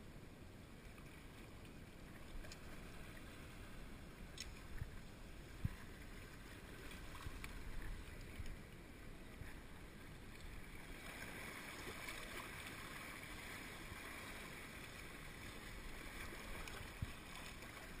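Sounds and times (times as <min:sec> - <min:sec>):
small waves sloshing against rocks: 0:01.0 - 0:18.0
wind rumble on microphone: 0:04.6 - 0:06.3, 0:15.8 - 0:18.0.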